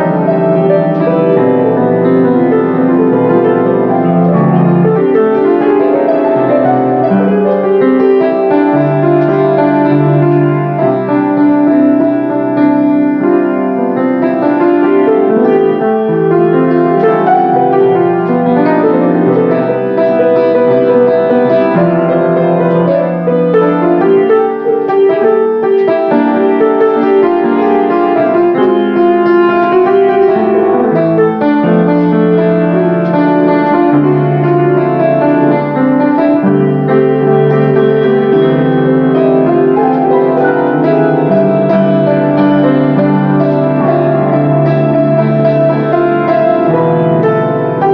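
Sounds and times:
grand piano playing: 0.0 - 47.9.

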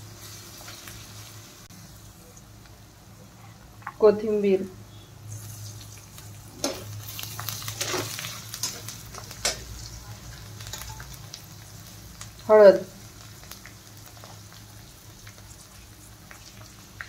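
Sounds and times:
onion frying in oil: 0.0 - 17.0
metal spatula scraping pan: 7.6 - 9.7.

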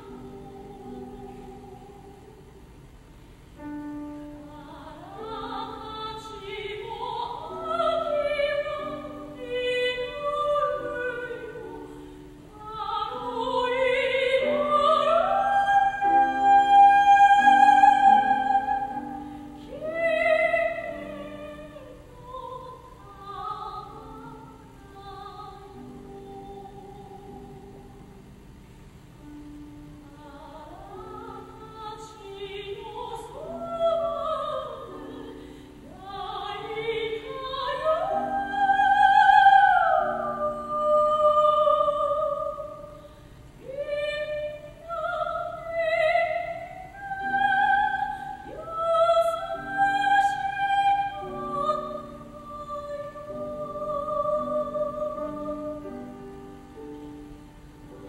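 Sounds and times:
soprano singing with vibrato: 0.0 - 2.8, 3.6 - 28.4, 29.2 - 58.0
piano accompaniment: 43.7 - 58.0.

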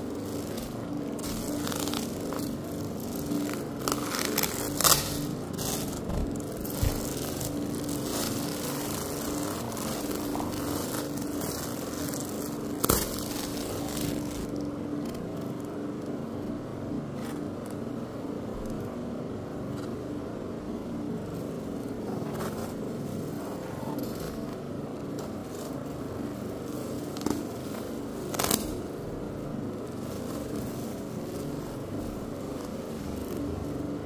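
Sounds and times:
plastic packaging crinkling: 0.0 - 14.7, 24.0 - 34.0
steady mechanical hum: 0.0 - 34.0.

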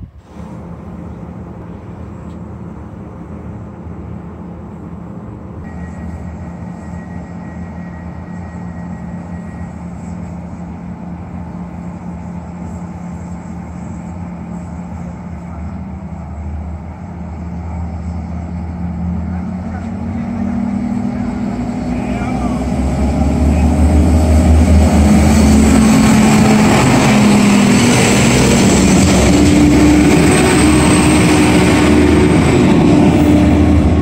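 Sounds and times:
diesel train engine drone: 0.0 - 34.0
thin high whine: 5.6 - 18.9.

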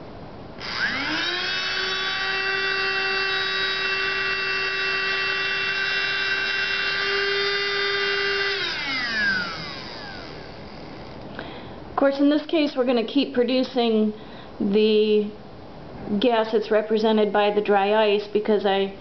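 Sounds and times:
electric motor whining: 0.6 - 11.3
motor spinning down: 0.6 - 11.3.

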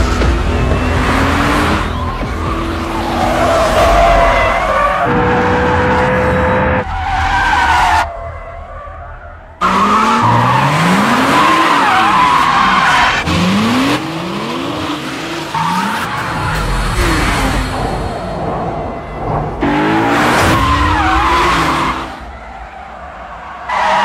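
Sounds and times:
car engines revving: 0.0 - 24.0
tyres squealing: 0.5 - 14.0.

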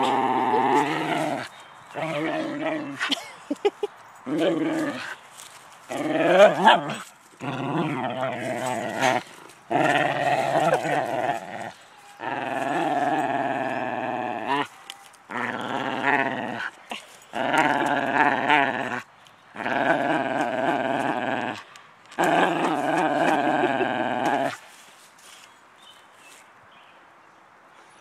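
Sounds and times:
dog growling in play: 0.0 - 3.2, 4.3 - 5.2, 5.8 - 14.7, 15.3 - 24.6.

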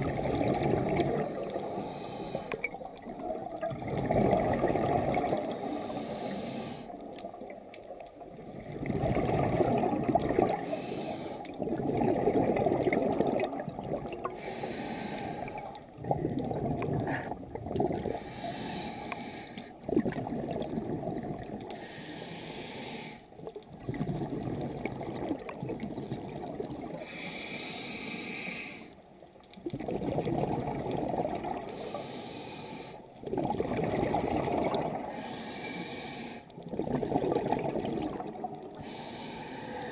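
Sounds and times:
bubbling regulator exhale: 0.0 - 6.9, 8.4 - 22.0, 23.4 - 28.5, 29.7 - 39.9
hissing inhales: 1.7 - 2.6, 5.5 - 6.9, 10.6 - 11.5, 14.4 - 15.7, 18.2 - 19.7, 21.8 - 23.2, 27.0 - 29.0, 31.8 - 33.0, 35.1 - 36.5, 38.8 - 39.9.

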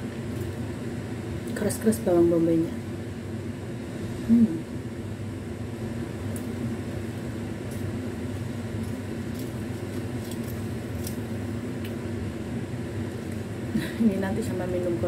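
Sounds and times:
low mechanical hum: 0.0 - 15.0
bread being chewed: 6.2 - 12.2, 12.9 - 13.6.

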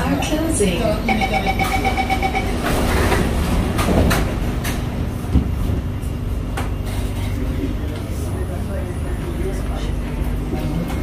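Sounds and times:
train carriage rumble: 0.0 - 11.0
train sliding doors closing: 1.6 - 8.4.

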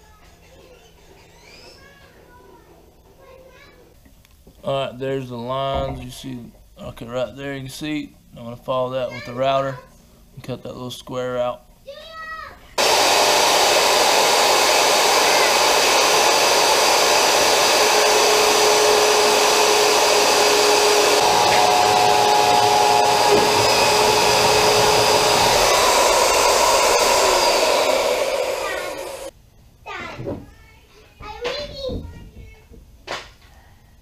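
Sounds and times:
electric router cutting plastic: 12.8 - 29.3.

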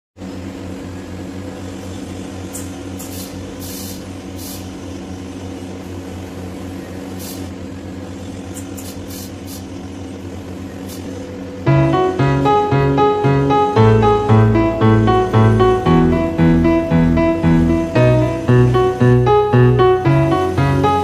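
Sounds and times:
machine hum: 11.6 - 21.0.

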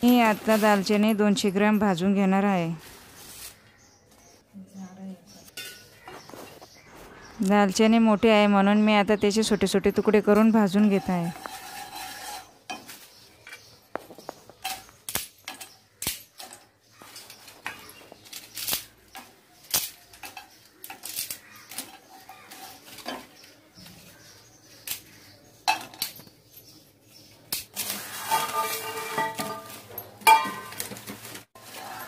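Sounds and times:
pieces clattering into pan: 14.5 - 23.4, 27.6 - 32.0.

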